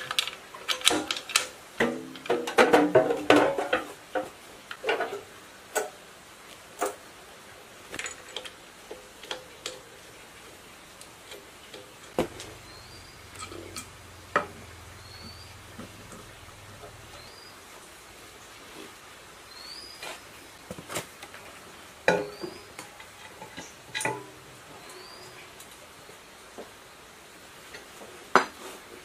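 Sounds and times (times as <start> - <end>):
metal parts clicking and knocking: 0.0 - 5.2, 7.9 - 10.0, 22.1 - 25.0.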